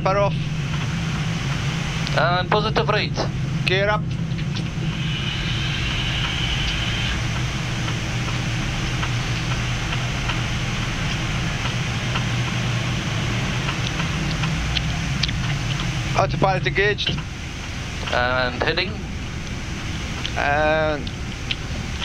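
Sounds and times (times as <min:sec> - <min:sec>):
faint high whine: 0:00.0 - 0:22.0
low engine drone: 0:00.0 - 0:22.0
airflow hiss: 0:04.6 - 0:15.2.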